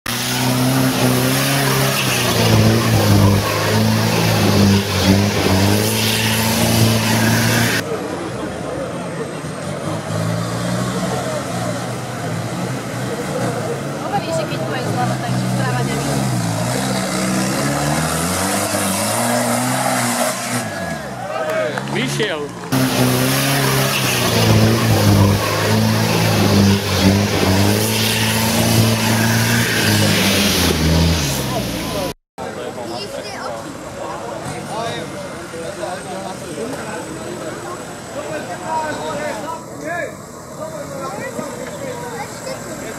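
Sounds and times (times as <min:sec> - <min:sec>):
vehicle engine revving: 0:00.0 - 0:32.2.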